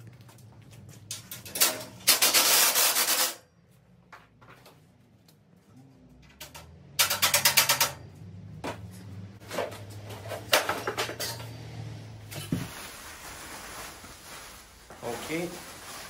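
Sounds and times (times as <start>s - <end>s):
metal bars clanking and rattling: 6.3s - 8.2s.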